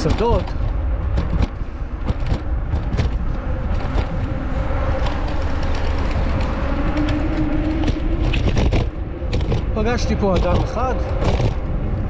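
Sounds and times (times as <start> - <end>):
road noise: 0.0 - 12.0
wind rumbling on microphone: 0.0 - 12.0.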